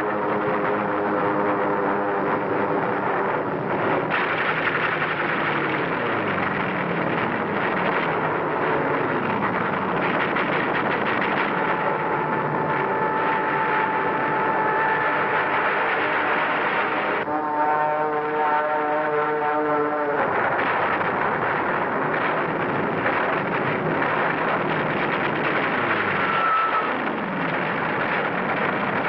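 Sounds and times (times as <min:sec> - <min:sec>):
high steady engine note: 0:00.0 - 0:18.6
aircraft engines droning: 0:00.0 - 0:29.0
planes passing by: 0:00.0 - 0:29.0.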